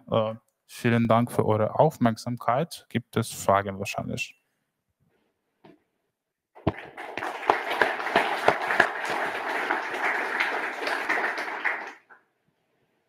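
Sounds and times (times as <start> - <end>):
audience applauding: 6.6 - 12.2.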